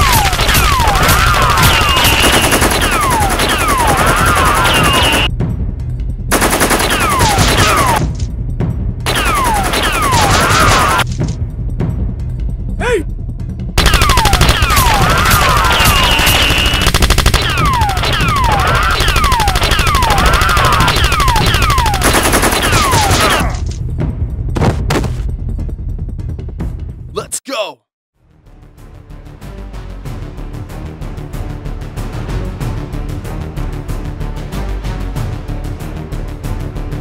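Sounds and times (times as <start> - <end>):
automatic gunfire bursts: 0.0 - 5.3, 13.8 - 23.4
whistling bullets falling in pitch: 0.0 - 5.3, 9.1 - 11.0, 13.8 - 23.5.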